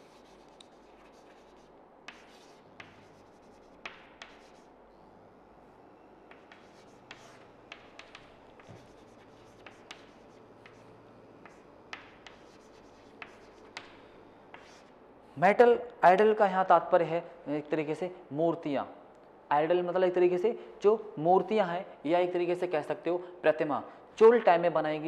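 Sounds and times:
chalk tapping and scraping: 0.0s - 4.7s, 6.3s - 14.9s.

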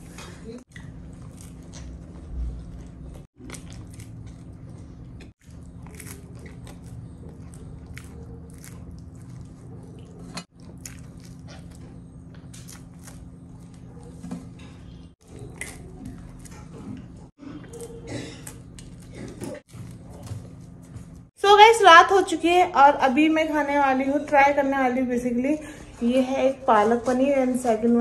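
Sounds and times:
steady low hum: 0.0s - 28.0s
person crunching and chewing pizza: 0.7s - 21.2s.

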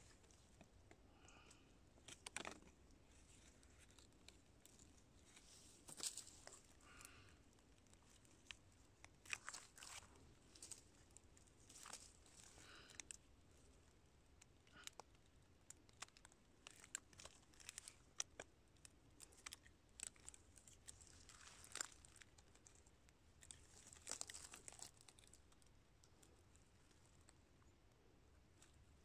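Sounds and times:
dry leaves crackling and rustling: 4.7s - 7.1s, 11.7s - 12.9s, 20.0s - 22.3s, 23.4s - 25.3s.

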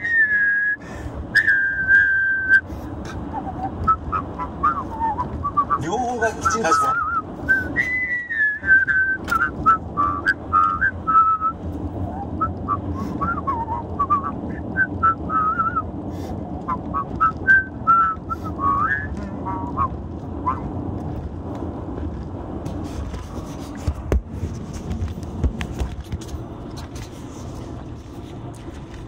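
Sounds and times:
man whistling a tune: 0.0s - 5.8s, 6.4s - 15.9s, 16.6s - 20.7s
car road noise: 0.0s - 29.0s.

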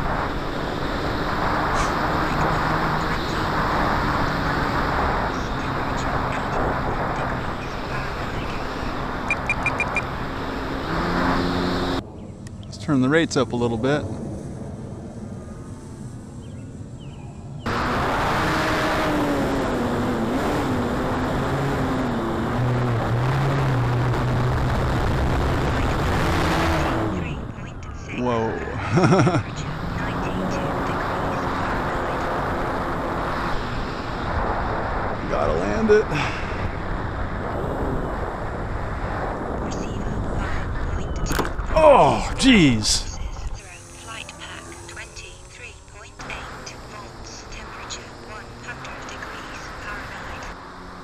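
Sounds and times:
wind rushing over microphone: 0.0s - 28.0s, 28.6s - 45.4s.

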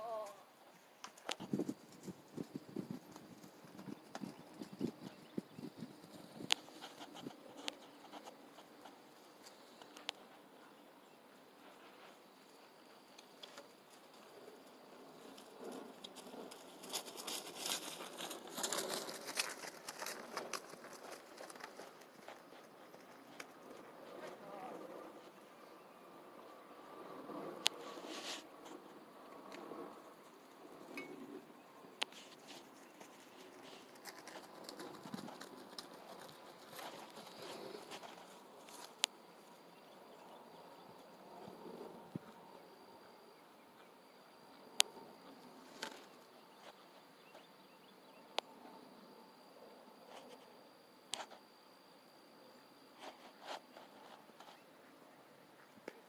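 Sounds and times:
rustling crackling noise: 0.0s - 10.6s, 11.5s - 25.5s, 26.9s - 30.9s, 31.8s - 39.7s.

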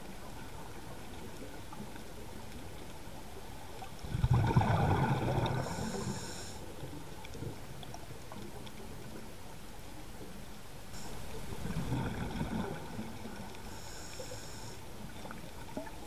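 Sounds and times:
exhaled bubbles underwater: 0.0s - 9.3s, 11.2s - 13.6s, 15.0s - 16.0s
underwater hiss: 4.2s - 7.0s, 10.9s - 15.3s.

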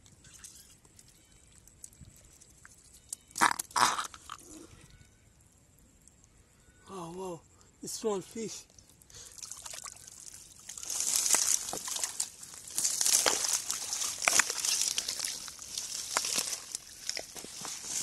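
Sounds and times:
small crackly clicks: 0.0s - 4.4s
hands squelching in wet mud: 8.7s - 18.0s.

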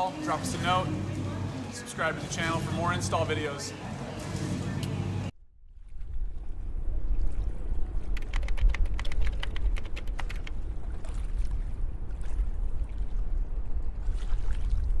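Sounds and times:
small waves lapping: 0.0s - 5.3s, 10.1s - 15.0s
low rumble: 0.0s - 15.0s.

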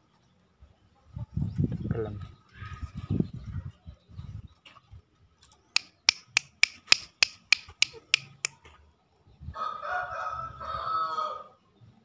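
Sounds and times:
sharp clicks: 5.8s - 8.6s
junglefowl crowing: 9.6s - 11.6s.

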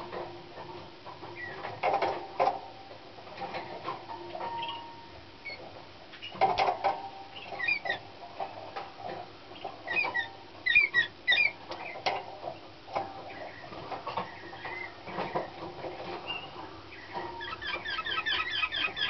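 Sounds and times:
canary chirping: 7.3s - 8.1s, 9.5s - 12.1s, 13.2s - 15.5s, 16.2s - 19.0s.

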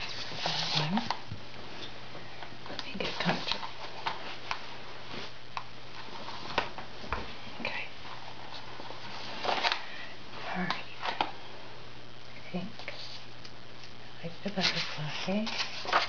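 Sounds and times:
paper rustling: 0.0s - 1.2s, 3.0s - 7.4s, 8.0s - 10.0s, 14.4s - 16.0s.

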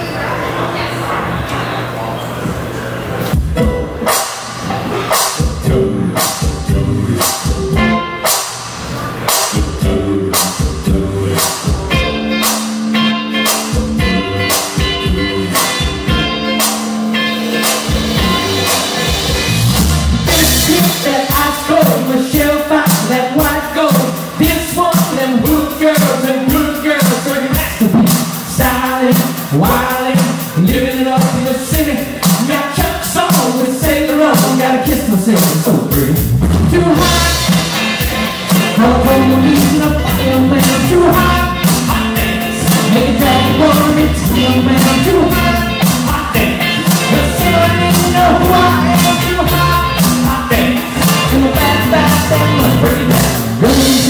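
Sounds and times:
drums: 2.4s - 54.0s
electric guitar: 3.3s - 35.0s, 36.1s - 54.0s
person singing: 5.0s - 8.2s, 9.3s - 54.0s.

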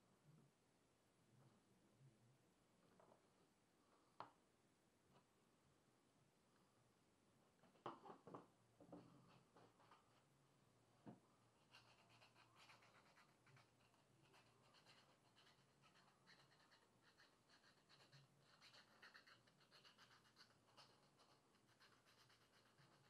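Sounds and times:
faint low hum: 0.0s - 23.0s
faint scratching and rubbing: 7.7s - 10.3s, 11.6s - 23.0s.

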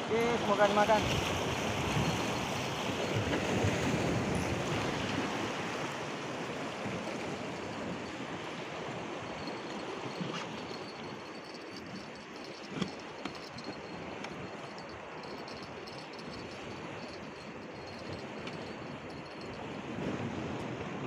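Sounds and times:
sea waves washing on shore: 0.0s - 21.0s.

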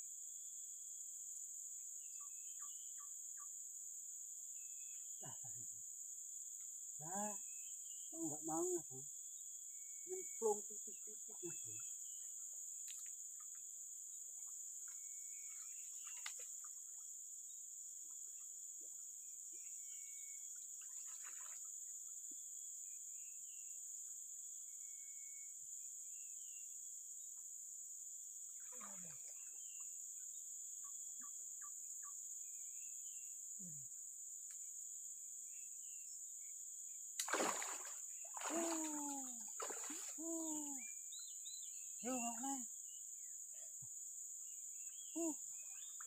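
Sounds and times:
faint bird chirps: 2.0s - 3.6s, 6.6s - 27.4s, 28.5s - 34.6s, 37.3s - 46.0s
high-pitched insect drone: 37.3s - 46.0s.

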